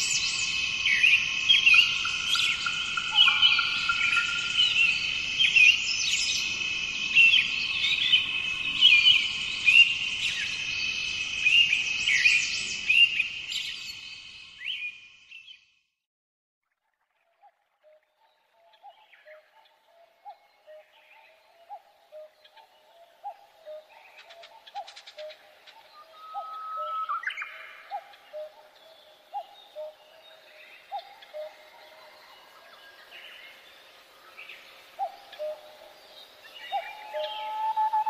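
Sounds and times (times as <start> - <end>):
birds chirping and whistling: 0.0 - 6.5, 24.7 - 29.9, 36.5 - 38.0
low bird call: 36.7 - 38.0.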